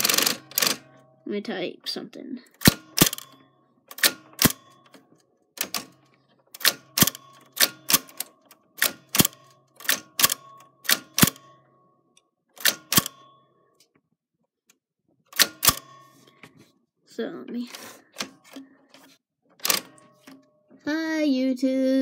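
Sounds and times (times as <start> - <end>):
typewriter typebars clacking: 0.0 - 0.9, 2.6 - 5.0, 5.6 - 6.0, 6.6 - 11.4, 12.6 - 13.2, 15.4 - 15.9, 19.6 - 20.4.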